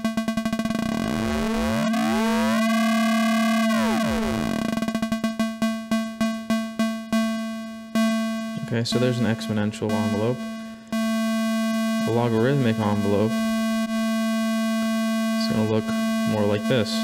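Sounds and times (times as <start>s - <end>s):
synth plucks: 0.0s - 7.4s, 8.0s - 11.1s
modular synth tone: 0.4s - 5.4s.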